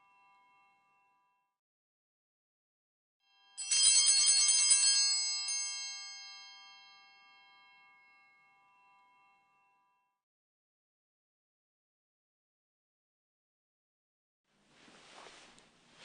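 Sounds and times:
altar bells jingling: 3.6s - 6.9s.

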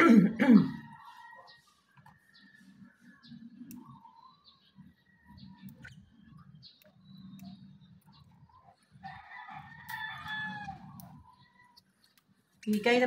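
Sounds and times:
lovebirds chirping: 0.0s - 13.0s
rooster crowing: 0.5s - 1.9s, 9.0s - 11.8s.

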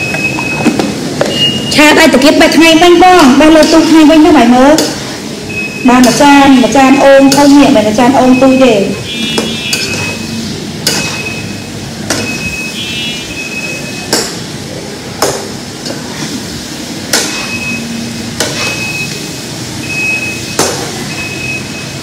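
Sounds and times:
metal ladle scraping frying pan: 9.1s - 12.5s, 17.1s - 19.2s.

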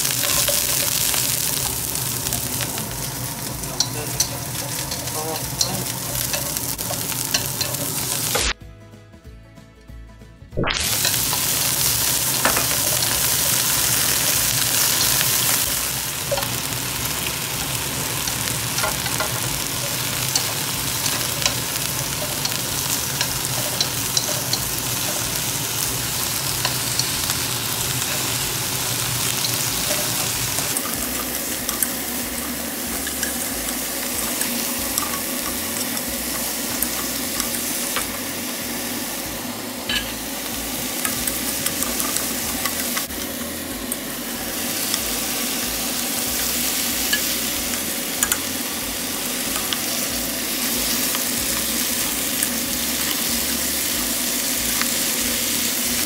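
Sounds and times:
chopsticks scraping a pan: 0.0s - 8.5s, 10.9s - 39.0s, 39.8s - 43.4s
vegetables sizzling in a wok: 0.0s - 8.6s, 10.6s - 56.0s.

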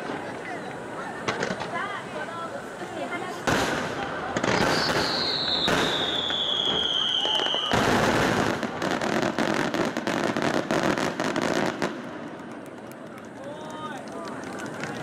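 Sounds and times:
firework crackling: 0.0s - 15.0s
firework bang: 3.4s - 12.1s
firework whistle sliding down: 4.6s - 7.9s.

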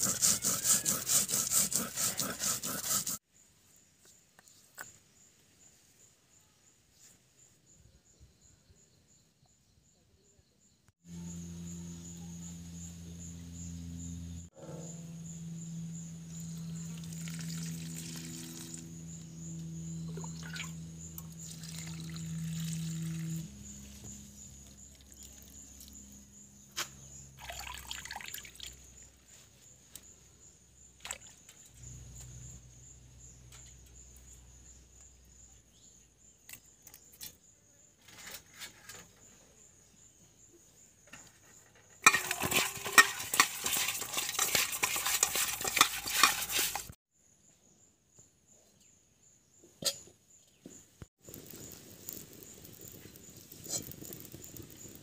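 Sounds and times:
hands squelching paste in metal bowl: 42.0s - 47.0s.

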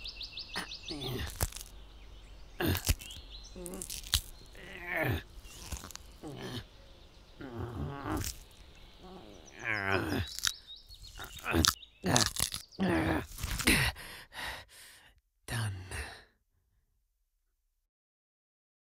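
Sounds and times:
person moaning: 0.6s - 1.4s, 2.6s - 3.0s, 3.6s - 6.7s, 7.4s - 10.5s, 11.2s - 14.7s, 15.5s - 16.3s
person grunting and sighing: 0.6s - 1.6s, 2.6s - 6.7s, 7.4s - 10.5s, 11.2s - 16.3s.

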